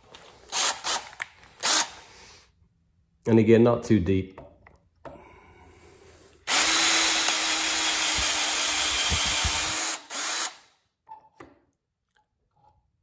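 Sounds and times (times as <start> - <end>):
cordless drill boring into metal: 6.5 - 10.6.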